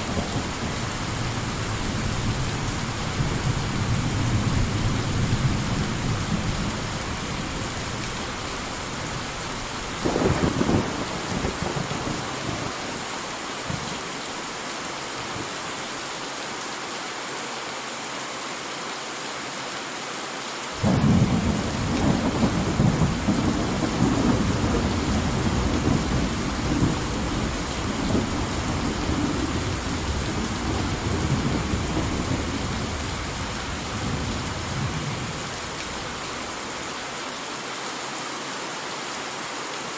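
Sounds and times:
steady rain: 0:00.0 - 0:39.9
rolling thunder: 0:10.0 - 0:12.8, 0:20.8 - 0:35.6
thunder crack: 0:20.8 - 0:33.0.

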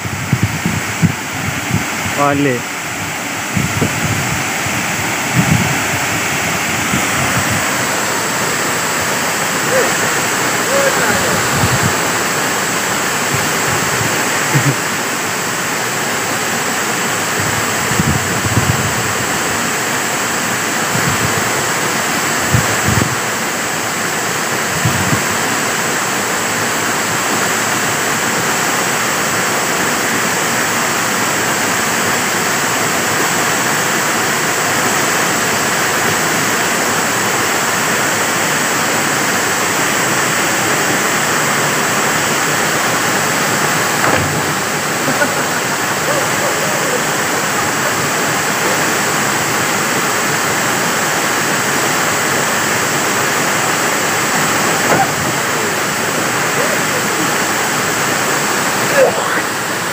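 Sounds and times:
waterfall rushing: 0:00.0 - 0:59.9
short low thumps: 0:43.9 - 0:45.5.

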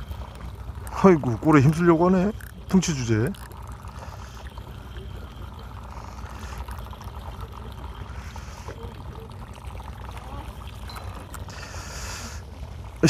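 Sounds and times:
fishing reel being cranked: 0:00.0 - 0:08.8
splashing water: 0:00.0 - 0:13.0.

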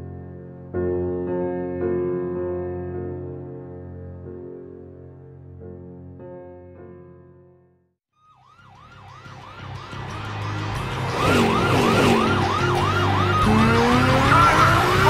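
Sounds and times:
car engines running: 0:10.6 - 0:15.0
police siren yelping: 0:10.8 - 0:15.0
engine revving with rising whine: 0:10.9 - 0:15.0.

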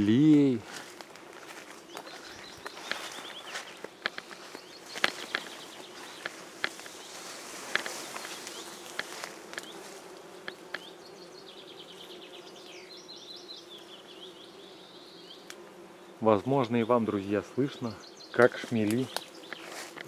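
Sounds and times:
bumblebees humming: 0:00.0 - 0:20.0
bird chirping: 0:01.8 - 0:07.3, 0:10.4 - 0:19.8.

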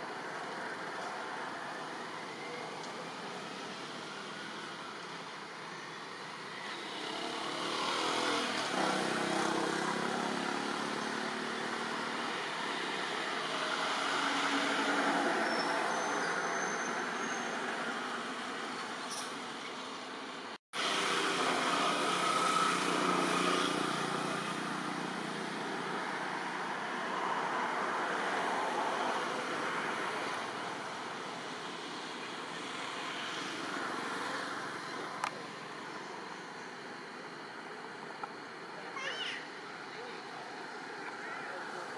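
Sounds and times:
road traffic passing: 0:00.0 - 0:41.9.

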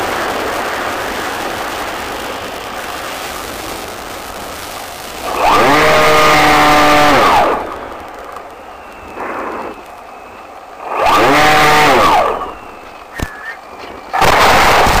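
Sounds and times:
loud rush of noise: 0:00.0 - 0:15.0
electric motor spooling: 0:10.8 - 0:12.7.

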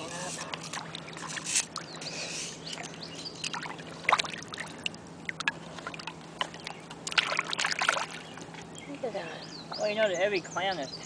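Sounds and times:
river water lapping over shells: 0:00.0 - 0:08.8
small splashes and clicks: 0:02.7 - 0:08.5.

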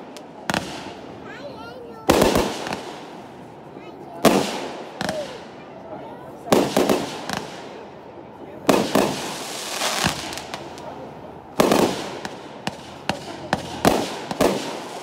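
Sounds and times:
firework bangs with echo: 0:00.0 - 0:03.5, 0:04.1 - 0:05.7, 0:06.5 - 0:07.9, 0:08.6 - 0:15.0.

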